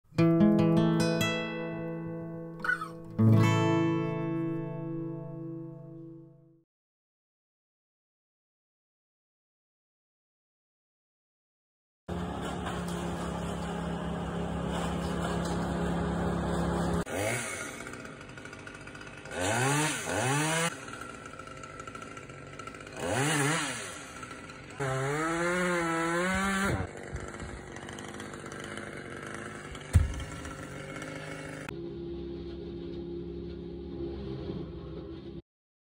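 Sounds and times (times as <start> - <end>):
chainsaw revving: 12.1 - 31.7.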